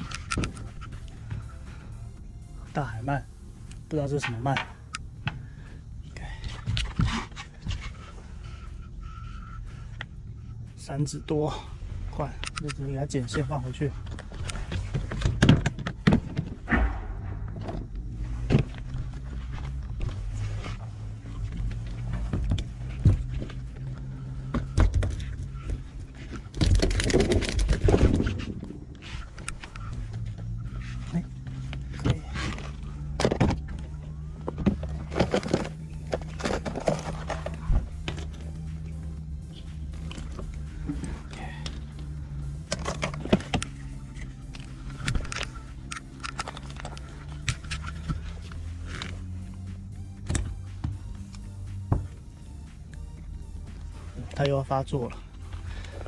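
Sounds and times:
steady low hum: 0.0s - 56.0s
metallic clicks of pliers: 12.4s - 12.9s.

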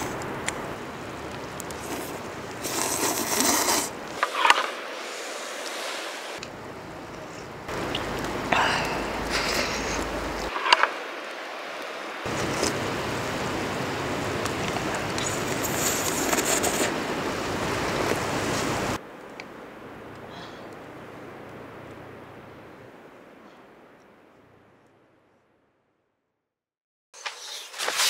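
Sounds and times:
steady outdoor hiss: 0.0s - 25.8s
person slurping noodles: 1.8s - 4.0s.

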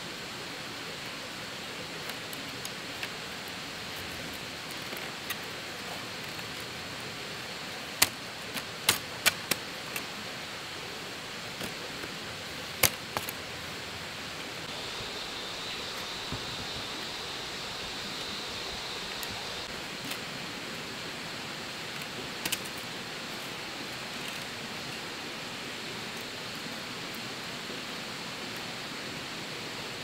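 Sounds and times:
steady rushing hiss: 0.0s - 30.0s
bamboo strips clicking and snapping: 2.0s - 6.8s, 7.8s - 10.1s, 11.5s - 13.4s, 21.9s - 23.0s.

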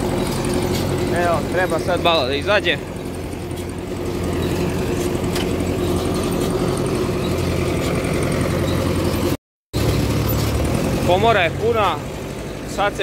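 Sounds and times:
baler rattling: 0.0s - 9.4s
tractor diesel engine running: 0.0s - 13.0s.

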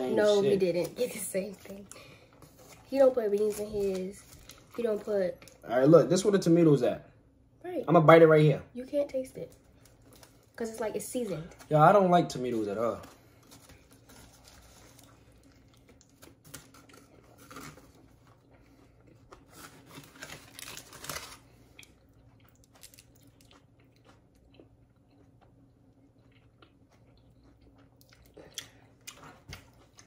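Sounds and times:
person chewing food: 13.0s - 30.0s
wet crunching and mouth clicks: 15.0s - 19.5s, 21.7s - 30.0s.

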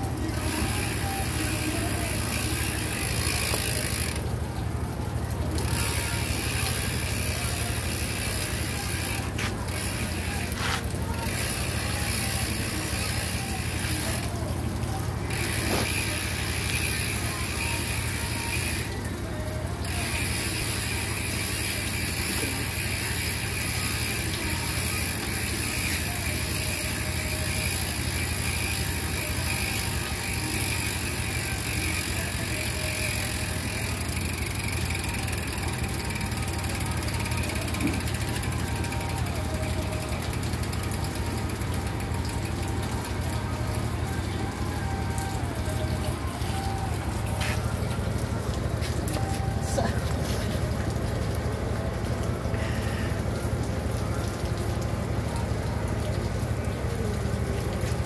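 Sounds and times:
bicycle hub ratcheting: 0.0s - 4.9s, 5.5s - 19.0s, 19.8s - 47.6s.

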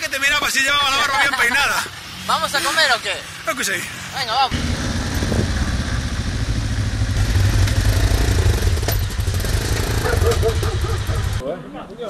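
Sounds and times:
motorcycle engine running: 4.5s - 11.4s
wind noise on microphone: 4.6s - 7.0s.

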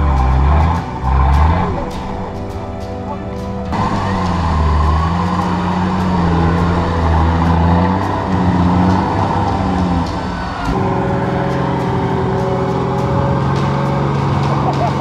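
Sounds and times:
off-road vehicle engine revving: 0.0s - 15.0s.

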